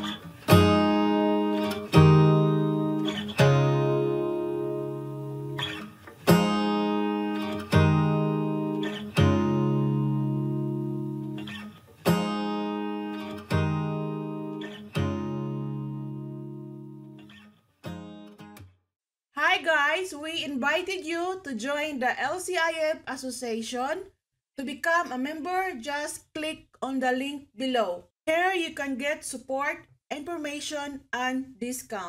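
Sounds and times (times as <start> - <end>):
acoustic guitar strumming chords: 0.0 - 18.6.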